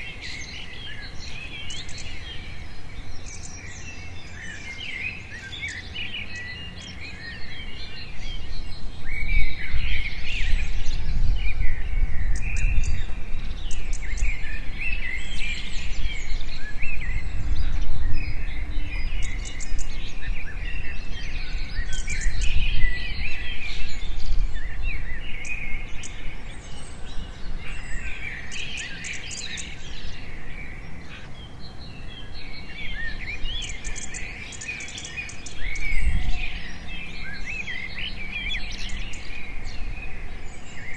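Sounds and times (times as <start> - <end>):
birds chirping and trilling: 0.0 - 10.5, 24.6 - 40.9.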